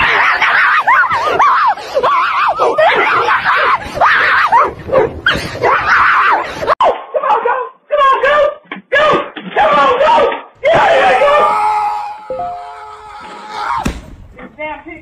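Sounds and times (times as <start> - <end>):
people screaming: 0.0 - 6.7, 10.6 - 14.1.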